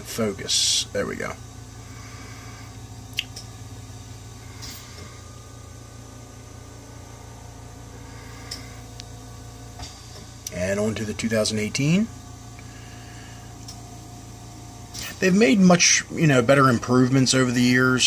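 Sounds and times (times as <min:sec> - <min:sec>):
low hum: 0:00.0 - 0:18.0
small click: 0:13.6 - 0:13.8.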